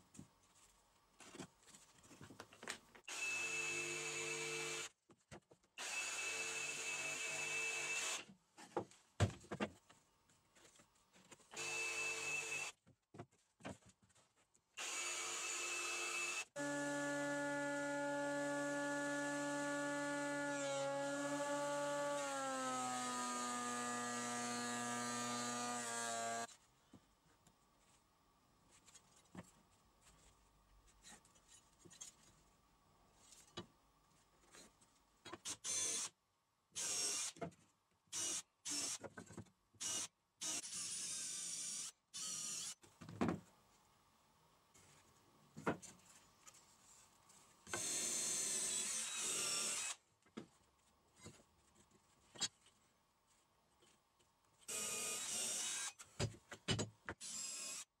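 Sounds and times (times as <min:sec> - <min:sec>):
knocks of handling wood: 0:08.6 - 0:10.0
cordless drill bursts: 0:11.6 - 0:12.7, 0:47.8 - 0:50.0, 0:57.2 - 0:57.9.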